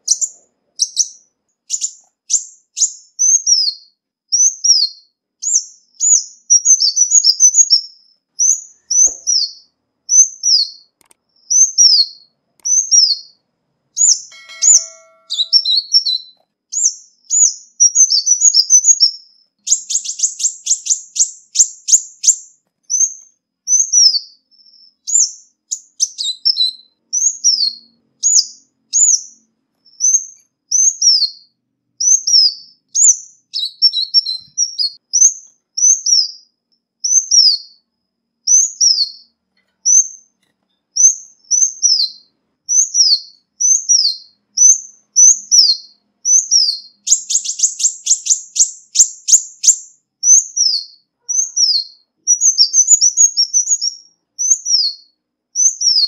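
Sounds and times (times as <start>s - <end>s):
bird twittering: 0.0s - 13.4s, 14.0s - 37.8s, 41.0s - 56.0s
fast dry bird trill: 14.0s - 24.2s, 41.0s - 56.0s
bird calling high thin notes: 14.1s - 16.3s.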